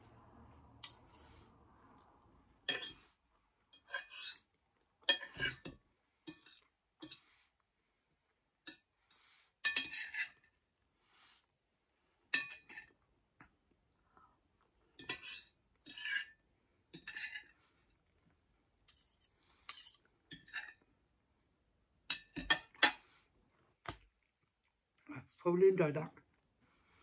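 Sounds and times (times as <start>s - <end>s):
cutlery scraping on plate: 0.8s - 1.4s, 2.6s - 3.1s, 3.7s - 7.3s, 8.7s - 10.5s, 12.3s - 13.0s, 15.0s - 17.8s, 18.9s - 20.8s, 22.1s - 23.1s.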